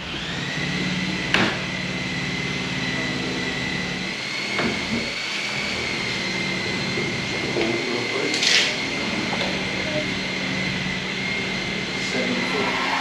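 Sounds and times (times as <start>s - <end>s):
machine motor whining: 0.0s - 13.0s
low hum: 8.9s - 13.0s.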